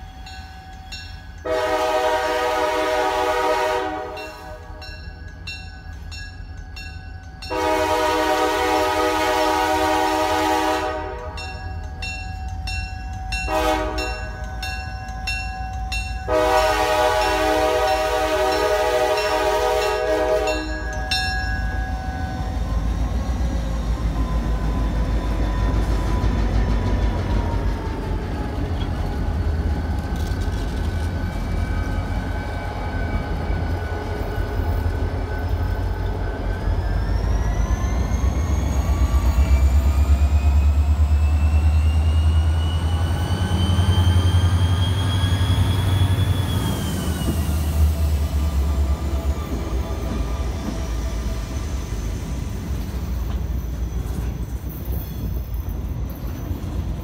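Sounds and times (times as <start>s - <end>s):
diesel locomotive engine rumble: 0.0s - 57.0s
locomotive horn blast: 1.4s - 4.8s, 7.5s - 11.6s, 13.4s - 14.4s, 16.2s - 20.9s.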